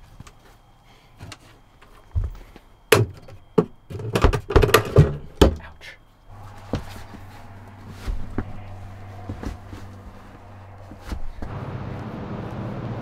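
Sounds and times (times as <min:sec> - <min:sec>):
steady low hum: 0:04.8 - 0:13.0
boot scuffs and taps: 0:06.6 - 0:11.5.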